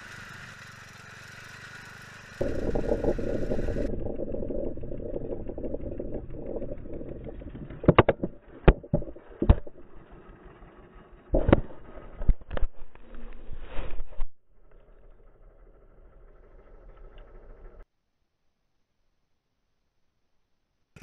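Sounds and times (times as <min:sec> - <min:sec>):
garden tractor engine rumbling: 0:00.0 - 0:13.7, 0:14.6 - 0:17.8
sharp knocks and thumps: 0:02.4 - 0:10.1, 0:11.4 - 0:13.2.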